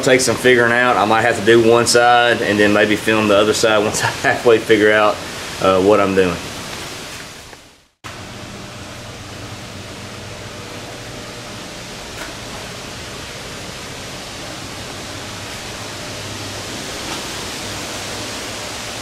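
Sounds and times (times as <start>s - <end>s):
steady rushing noise: 8.1s - 19.0s.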